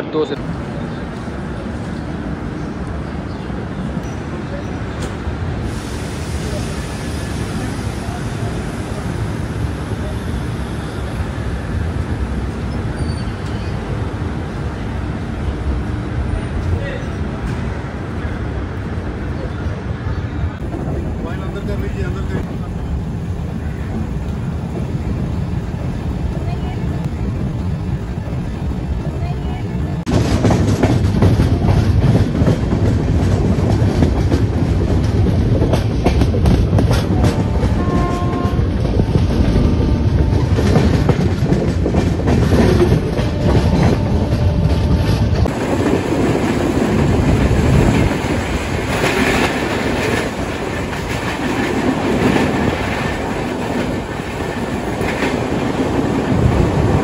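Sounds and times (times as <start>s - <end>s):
train coach rumbling on track: 0.0s - 57.0s
train wheels clattering over rail joints: 30.1s - 39.5s, 40.2s - 57.0s.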